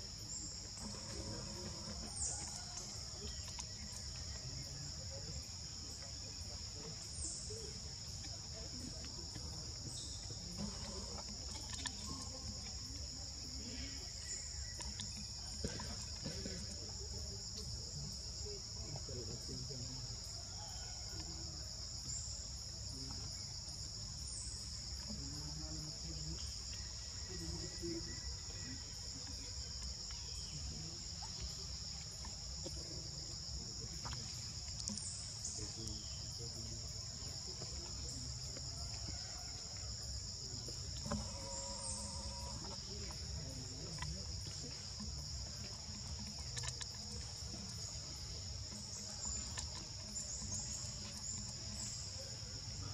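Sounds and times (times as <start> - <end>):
insects droning: 0.0 - 52.9.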